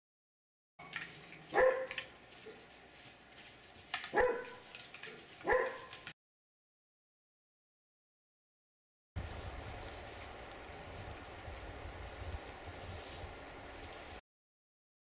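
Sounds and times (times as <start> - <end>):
animal barking: 1.5 - 2.7, 4.1 - 6.1.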